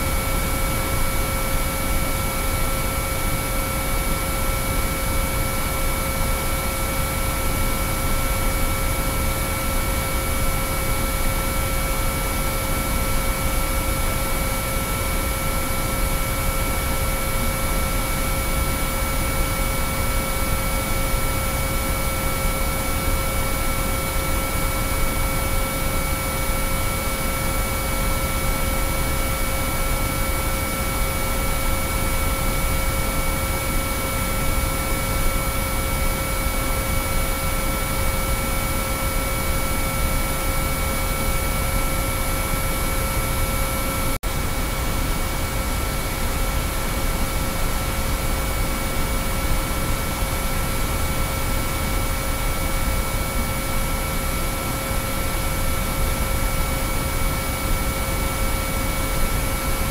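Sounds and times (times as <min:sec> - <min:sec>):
steady sine-wave tones: 0:00.0 - 0:59.9.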